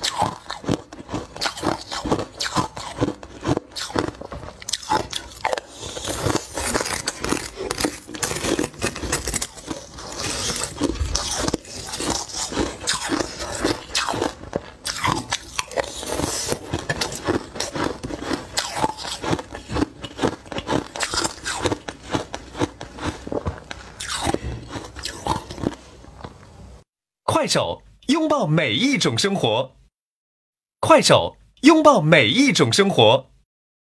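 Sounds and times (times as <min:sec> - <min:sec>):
crunching and chewing shaved ice: 0:00.0 - 0:26.4
plastic spoon scraping ice: 0:05.8 - 0:14.0.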